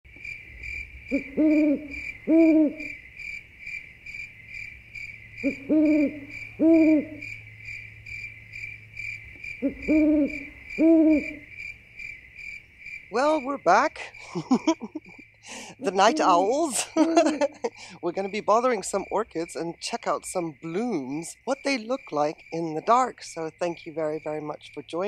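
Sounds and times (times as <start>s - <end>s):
crickets chirring: 0.1s - 25.0s
owl hooting: 1.1s - 3.0s, 5.4s - 7.4s, 9.5s - 11.5s, 15.5s - 17.8s.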